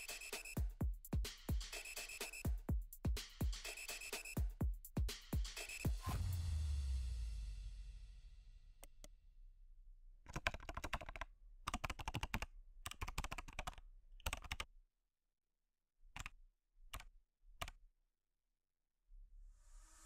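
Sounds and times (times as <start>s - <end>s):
typing on laptop keyboard: 10.3s - 14.7s.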